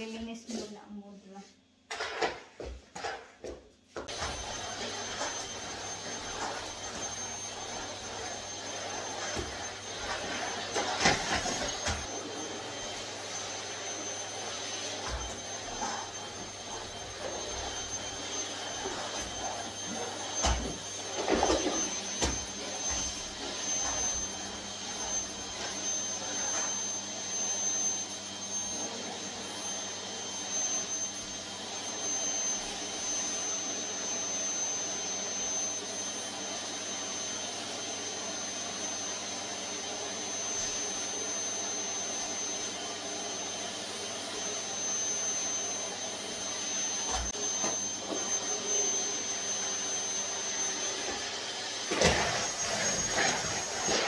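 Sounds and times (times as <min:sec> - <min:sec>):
vacuum cleaner running: 0:00.0 - 0:54.0.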